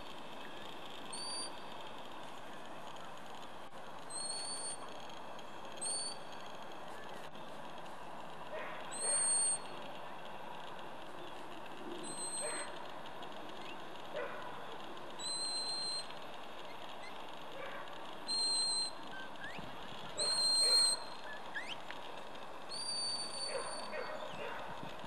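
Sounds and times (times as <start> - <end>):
shepherd's whistle blasts: 15.2 - 16.1, 18.3 - 19.0, 20.2 - 21.1, 22.7 - 24.0.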